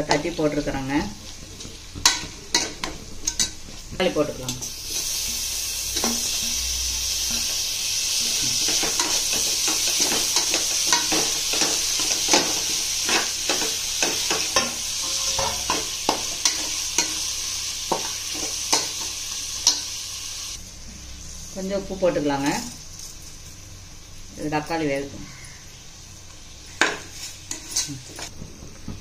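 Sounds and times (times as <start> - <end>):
food sizzling in a pan: 0.0 - 28.3
spoon scraping a pan: 8.3 - 20.0, 26.8 - 28.3.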